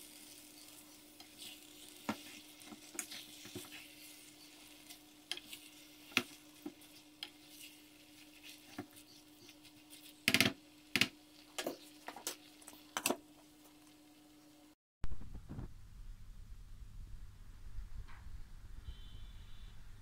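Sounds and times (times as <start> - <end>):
light sizzle: 0.0 - 18.2
utensils clicking and scraping pan: 0.1 - 12.4
steady low hum: 13.3 - 20.0.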